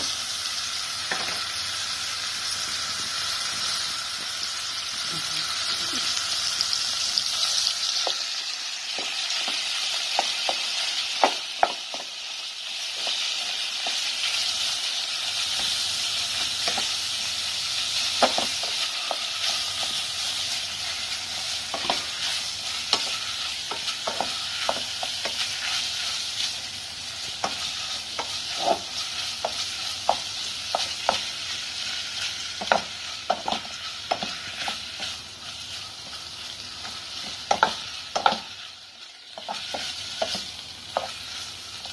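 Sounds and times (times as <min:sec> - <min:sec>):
meat sizzling in a pot: 0:00.0 - 0:41.9.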